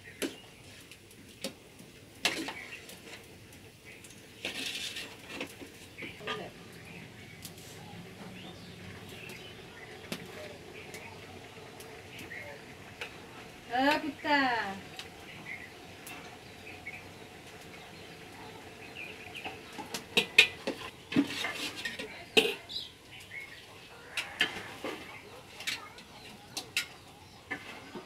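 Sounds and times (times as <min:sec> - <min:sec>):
metal spoon scraping a pot: 0:04.4 - 0:06.5, 0:20.2 - 0:22.6.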